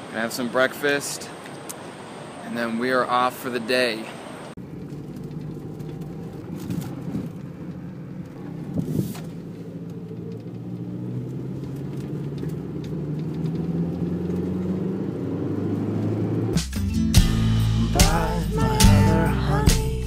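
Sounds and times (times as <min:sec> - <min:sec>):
road noise: 0:00.0 - 0:20.0
car engine from inside cabin: 0:04.2 - 0:16.6.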